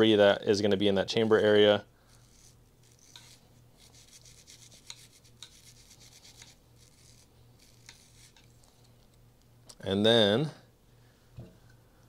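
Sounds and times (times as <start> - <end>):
brush bristles rubbing on metal: 2.0 - 8.7.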